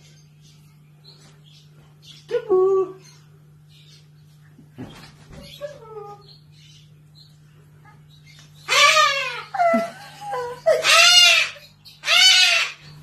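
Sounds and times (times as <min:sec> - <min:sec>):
cockatoo calling loudly: 0:08.6 - 0:13.0.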